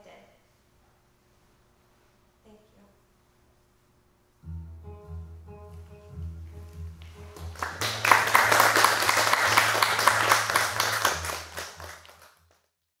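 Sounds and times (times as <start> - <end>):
soft music: 4.4 - 12.5
audience applauding: 7.0 - 12.6.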